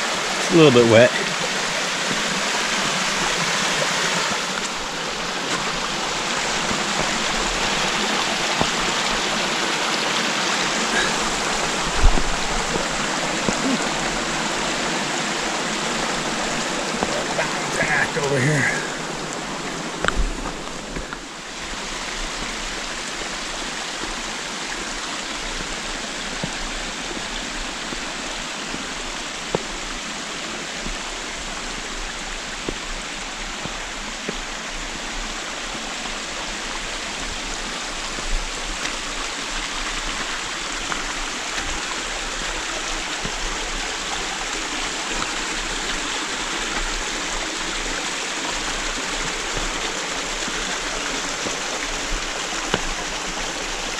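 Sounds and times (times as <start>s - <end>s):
stream rushing over rock: 0.0s - 53.9s.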